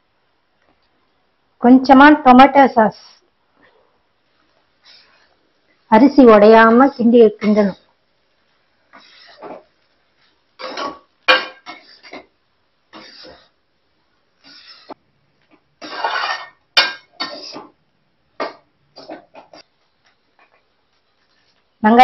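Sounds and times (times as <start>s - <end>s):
metal spatula scraping metal pan: 7.4s - 7.8s, 8.9s - 9.6s, 10.6s - 12.3s, 12.9s - 13.6s, 14.4s - 15.0s, 15.8s - 17.7s.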